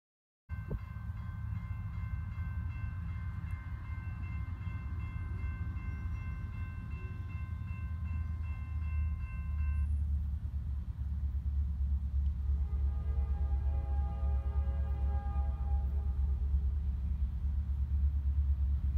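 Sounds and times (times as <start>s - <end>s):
distant locomotive air horn: 12.3s - 17.2s.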